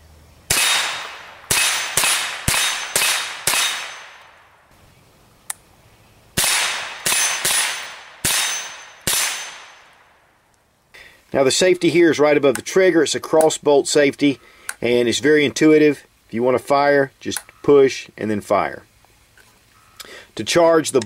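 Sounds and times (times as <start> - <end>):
rifle shots cracking: 0.5 - 4.6, 6.4 - 10.2.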